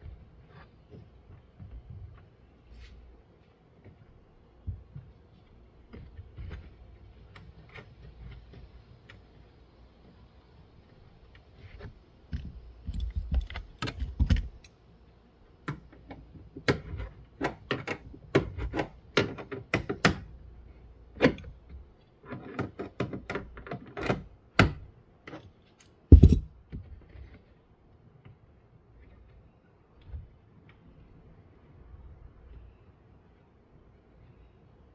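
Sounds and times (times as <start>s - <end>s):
hands clicking plastic trim: 15.7s - 20.3s.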